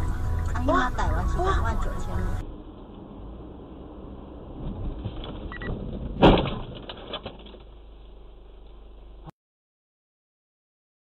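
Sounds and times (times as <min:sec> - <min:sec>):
road and engine noise: 0:00.0 - 0:09.3
car crash: 0:02.4 - 0:08.7.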